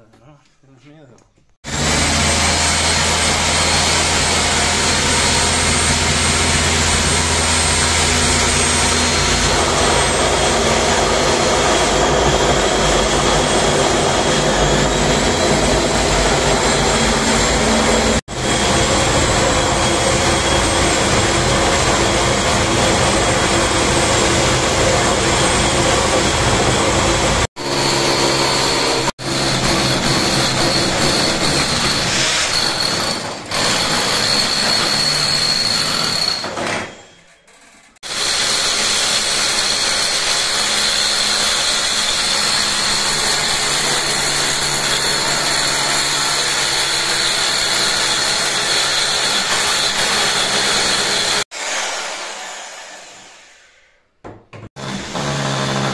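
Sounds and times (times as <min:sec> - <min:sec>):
rotary hammer drilling masonry: 0:01.7 - 0:53.7, 0:54.6 - 0:55.9.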